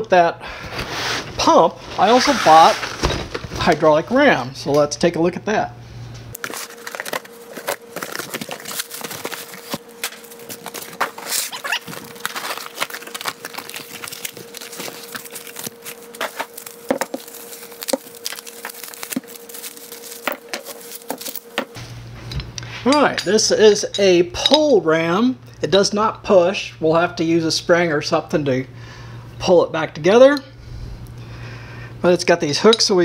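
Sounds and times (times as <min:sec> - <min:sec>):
faint steady hum: 0:00.0 - 0:33.0
crinkling plastic: 0:06.4 - 0:21.4
bubble wrap being peeled: 0:06.4 - 0:21.5.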